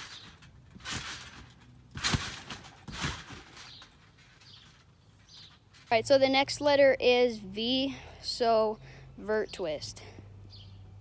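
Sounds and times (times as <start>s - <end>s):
trampoline mat thumps: 0.0s - 4.0s.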